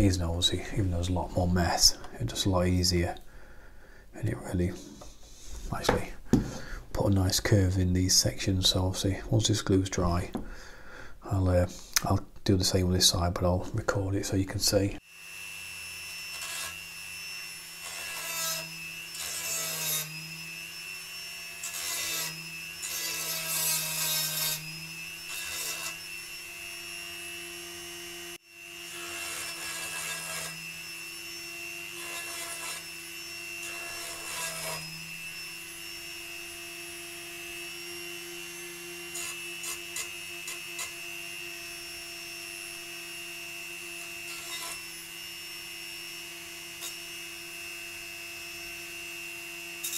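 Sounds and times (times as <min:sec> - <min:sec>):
rotary tool grinding wood: 0:14.7 - 0:49.9.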